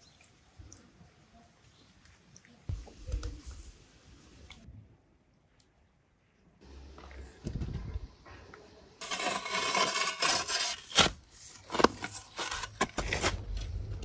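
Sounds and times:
shovel digging into hard earth: 0:09.0 - 0:13.9.

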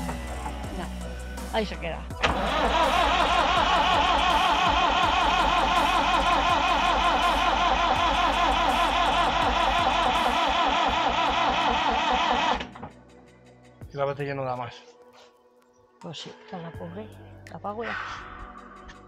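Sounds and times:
starter motor cranking diesel engine: 0:02.2 - 0:12.9.

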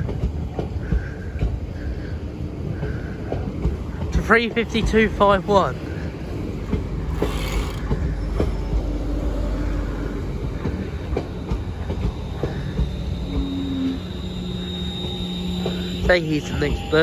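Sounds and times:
train wheels rumbling: 0:00.0 - 0:17.0
wheels clicking over rail: 0:06.7 - 0:08.1
faint steady whine: 0:11.1 - 0:17.0.

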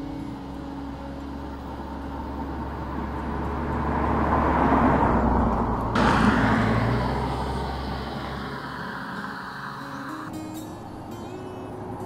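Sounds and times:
car driving past: 0:01.8 - 0:10.4.

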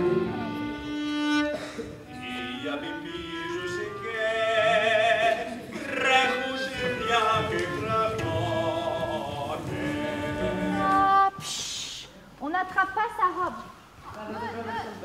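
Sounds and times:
operatic singing: 0:02.1 - 0:11.4
brief hiss: 0:11.4 - 0:12.2.

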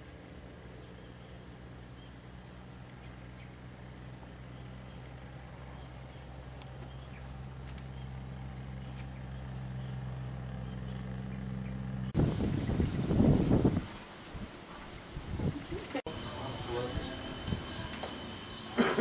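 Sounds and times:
low hum: 0:00.0 - 0:13.8
insects chorus: 0:00.0 - 0:19.0.

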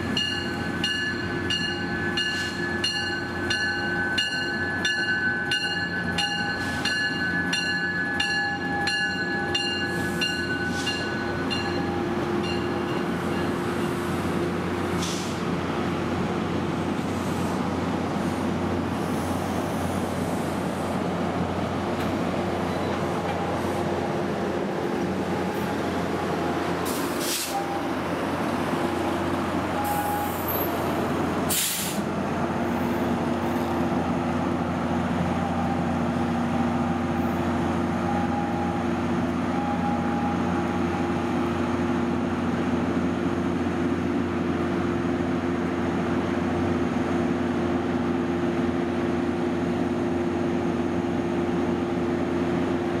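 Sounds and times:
diesel locomotive engine hum: 0:00.0 - 0:53.0
air brakes hissing: 0:09.9 - 0:11.2, 0:14.9 - 0:15.5, 0:17.1 - 0:18.4, 0:26.8 - 0:27.7, 0:29.8 - 0:30.8, 0:31.5 - 0:32.1.

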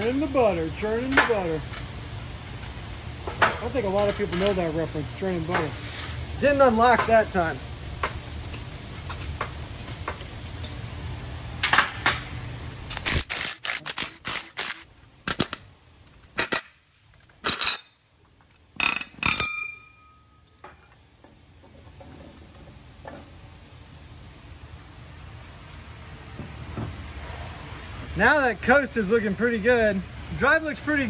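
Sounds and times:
metal parts clinking: 0:12.9 - 0:21.0.

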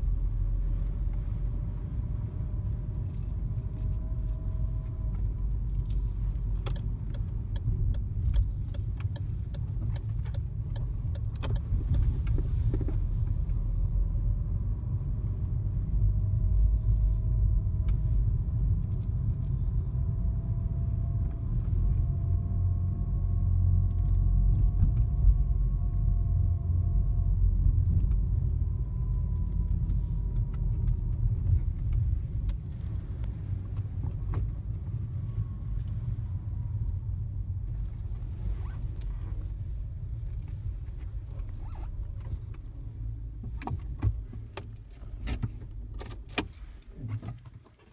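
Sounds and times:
car engine and tyre rumble: 0:00.0 - 0:47.9
light clicks and rattles: 0:02.6 - 0:13.6.

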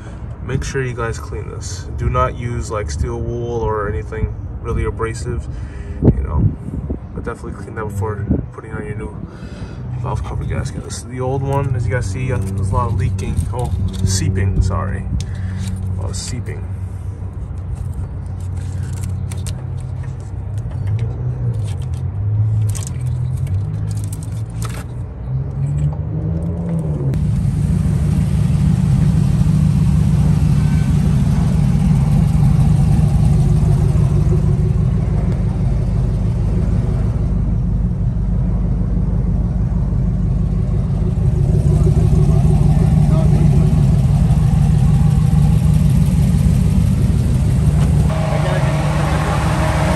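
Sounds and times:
car engine running: 0:11.5 - 0:49.9
low pitch-shifting sounds: 0:26.1 - 0:49.9.

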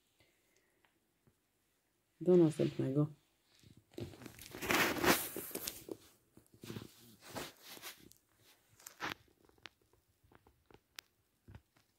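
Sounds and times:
rabbit rustling paper tissues: 0:04.1 - 0:09.2.

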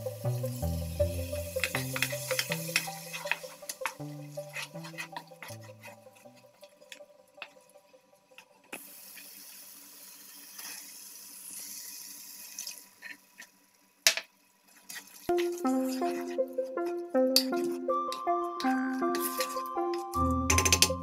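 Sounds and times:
filling sizzling in pan: 0:00.0 - 0:06.9, 0:08.7 - 0:13.9
background music: 0:00.0 - 0:08.4, 0:15.3 - 0:21.0
wooden spoon clicking in pan: 0:01.6 - 0:04.0.

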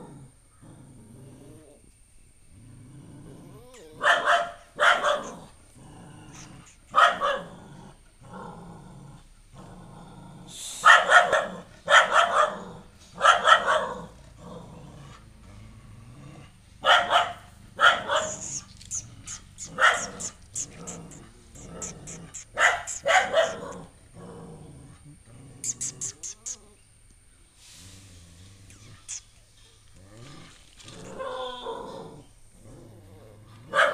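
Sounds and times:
dog barking: 0:04.0 - 0:05.5, 0:06.9 - 0:07.5, 0:10.8 - 0:14.1, 0:16.8 - 0:18.6, 0:19.3 - 0:23.9, 0:33.7 - 0:33.9.

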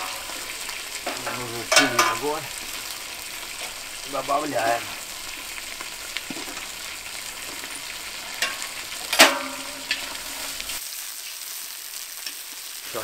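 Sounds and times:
meat sizzling in hot fat: 0:00.0 - 0:13.0
metal utensil knocking on pot: 0:01.0 - 0:02.4, 0:08.4 - 0:10.2.

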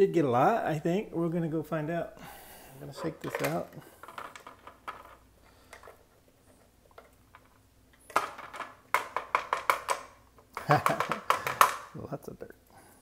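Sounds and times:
debris rattling onto plastic board: 0:03.0 - 0:05.9, 0:07.0 - 0:11.9.

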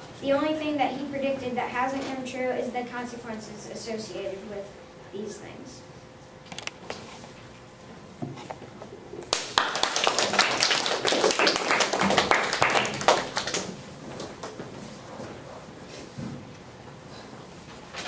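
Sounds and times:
people clapping: 0:09.2 - 0:13.8.

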